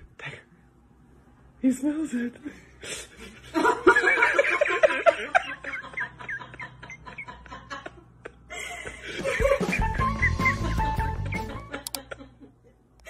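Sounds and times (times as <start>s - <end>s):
person laughing: 3.6s - 12.8s
faint clicks: 11.8s - 12.0s.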